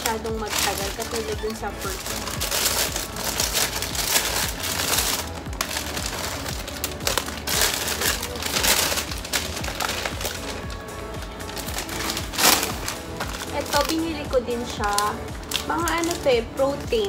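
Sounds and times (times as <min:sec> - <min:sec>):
background music: 0:00.0 - 0:17.0
plastic bags crinkling: 0:00.0 - 0:17.0.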